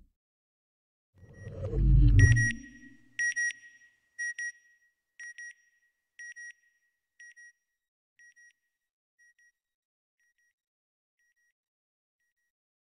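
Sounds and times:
high-pitched electronic beeps: 1.3 - 3.0.

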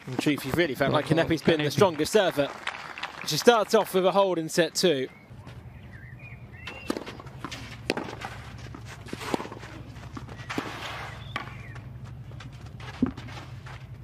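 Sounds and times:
racket striking ball: 6.7 - 11.9
ball bouncing: 6.7 - 13.4
footsteps on clay: 6.7 - 14.0.

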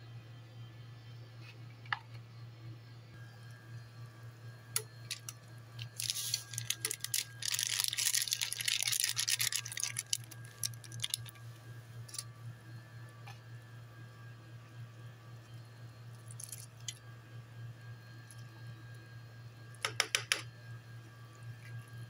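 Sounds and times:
steady low hum: 0.0 - 22.0
plastic sachet crinkling: 5.1 - 11.4.

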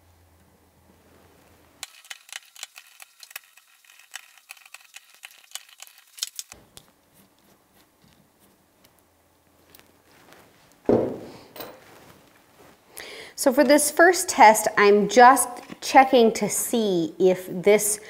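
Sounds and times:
faint steady hum: 0.0 - 18.0
screwdriver clicking on metal screws: 1.8 - 6.6.

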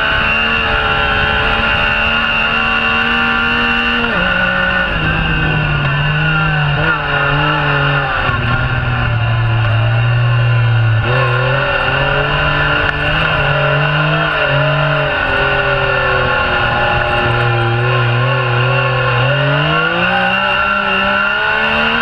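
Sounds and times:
engine running at high revs: 0.0 - 22.0.

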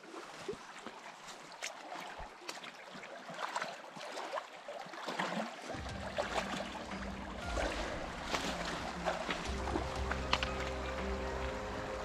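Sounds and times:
feet splashing in creek: 0.0 - 12.0
running stream: 0.0 - 12.0
low steady drone: 5.8 - 12.0.

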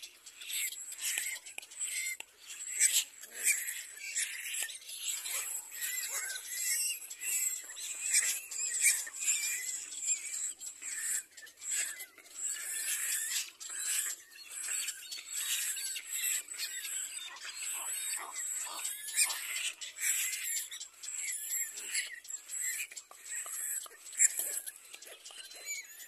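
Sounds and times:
bird nestlings begging calls: 0.5 - 25.8.

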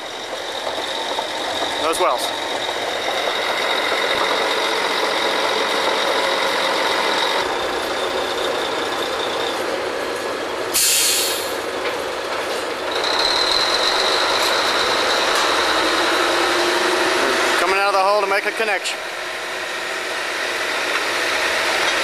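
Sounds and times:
drilling rig machinery whining: 0.0 - 22.0
loud burst of hissing air: 10.7 - 11.6.

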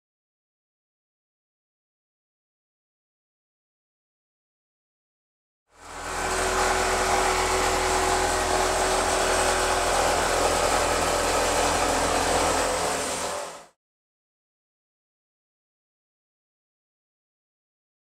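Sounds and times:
power tool cutting steel: 5.8 - 13.8.

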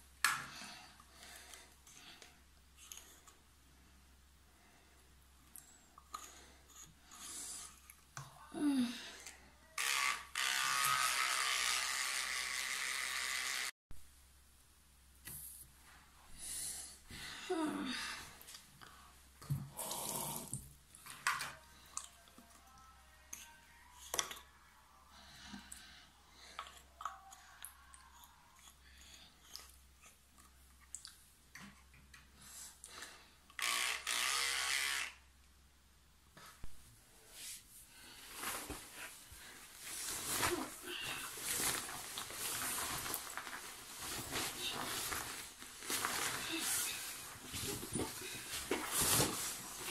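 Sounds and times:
electric toothbrush buzzing: 9.8 - 13.8, 33.6 - 35.3.

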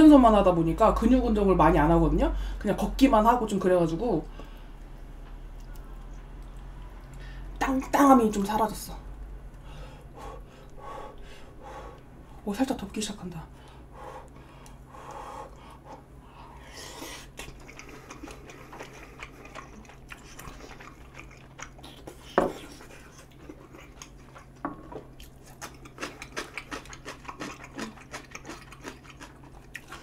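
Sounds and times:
close-up chewing: 4.4 - 7.5, 13.6 - 30.0.

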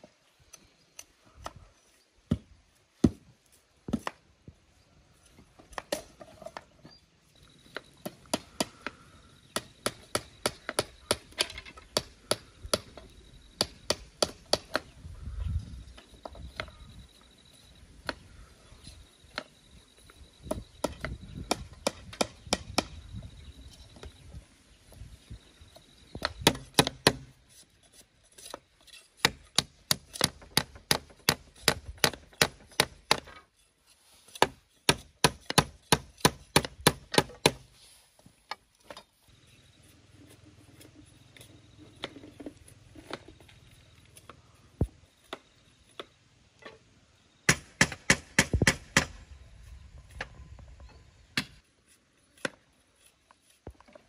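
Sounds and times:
tool chopping wood: 2.3 - 3.2, 8.0 - 8.9, 13.6 - 14.9, 20.5 - 23.0, 26.2 - 27.3, 29.2 - 33.4, 34.4 - 37.7, 47.5 - 49.2.

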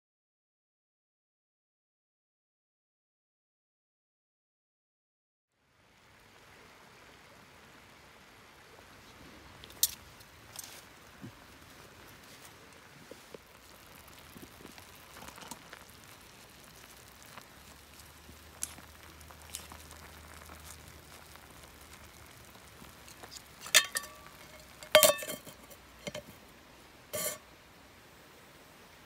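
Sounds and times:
faint clicks and crackles: 9.6 - 26.4
metal pot lid clanking: 23.6 - 26.4, 27.2 - 27.4.

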